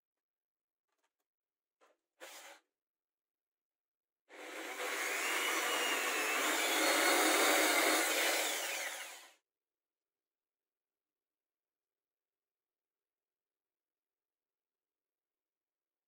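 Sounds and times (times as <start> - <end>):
electric drill boring into wood: 4.3 - 9.4.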